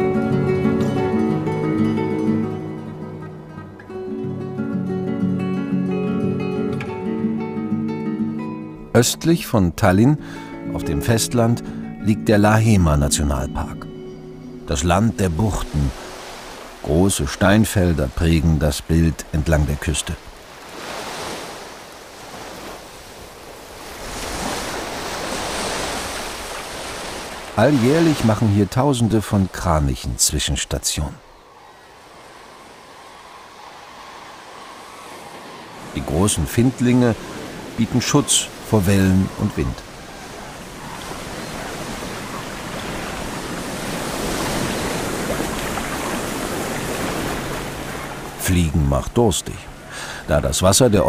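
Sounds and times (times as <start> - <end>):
sea surf washing among boulders: 0.0 - 3.2, 14.6 - 51.0
wind: 0.0 - 51.0.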